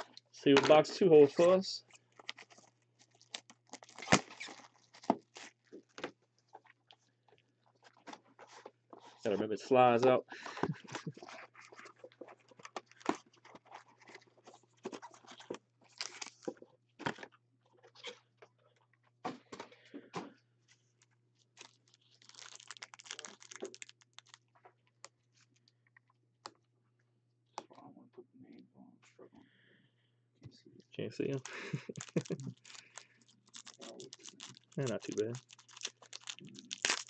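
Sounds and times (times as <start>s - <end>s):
foil packs crinkling: 2.1s - 5.8s, 21.6s - 24.4s, 31.3s - 37.0s.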